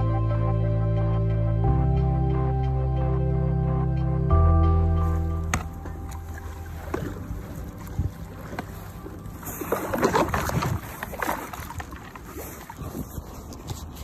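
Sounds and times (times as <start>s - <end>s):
water lapping against a hull: 5.0s - 14.0s.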